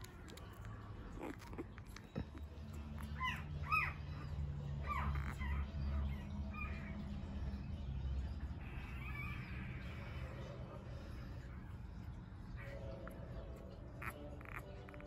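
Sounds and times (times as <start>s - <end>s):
puppy squealing: 3.0s - 7.0s, 8.6s - 10.5s, 13.9s - 15.0s.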